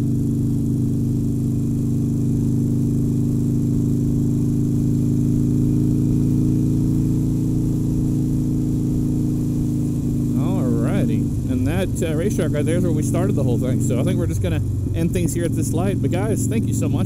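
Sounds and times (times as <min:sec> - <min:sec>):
motorcycle engine cruising: 0:00.0 - 0:17.0.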